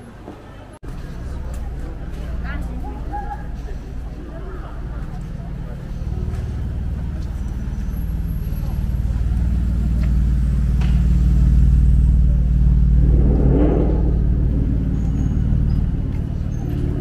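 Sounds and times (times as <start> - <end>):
vehicle engine humming: 0.8 - 17.0.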